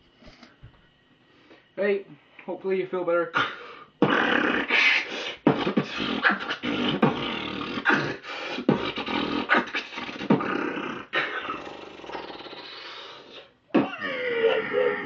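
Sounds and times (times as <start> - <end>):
man beatboxing: 3.4 - 14.0.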